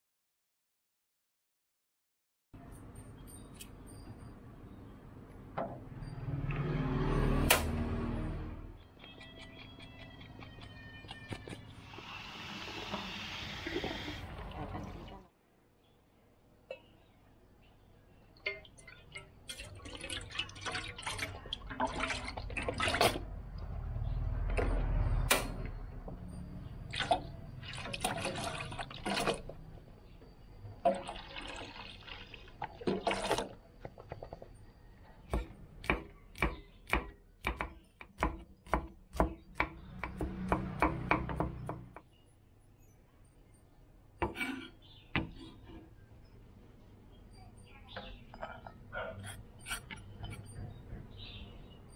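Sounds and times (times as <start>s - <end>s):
liquid pouring into a metal pot: 18.4s - 23.3s, 26.9s - 29.7s, 30.8s - 33.6s
knife chopping on wooden board: 35.3s - 41.8s.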